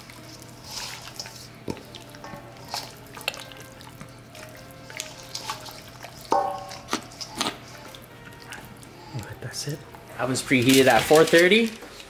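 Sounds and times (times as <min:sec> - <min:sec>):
hands squelching raw chicken: 0:00.0 - 0:09.8
background music: 0:00.0 - 0:12.0.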